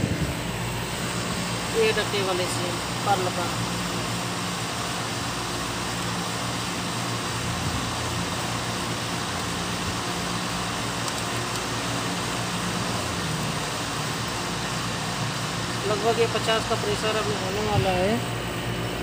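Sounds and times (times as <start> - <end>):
air conditioner fan rush: 0.0 - 19.0
low constant hum: 0.0 - 19.0.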